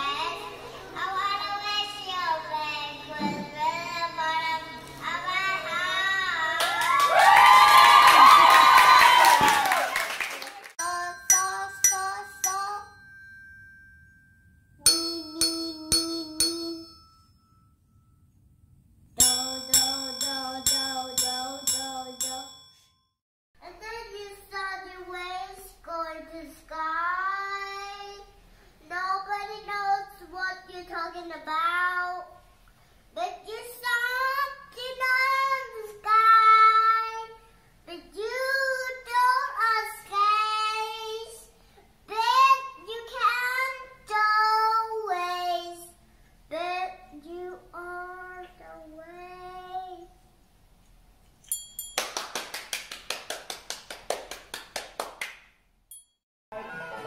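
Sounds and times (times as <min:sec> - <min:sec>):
child singing: 0:00.0 - 0:06.7, 0:10.8 - 0:13.0, 0:23.6 - 0:32.4, 0:33.2 - 0:41.5, 0:42.1 - 0:50.2
desk bells ringing: 0:10.8 - 0:23.1, 0:51.4 - 0:52.4.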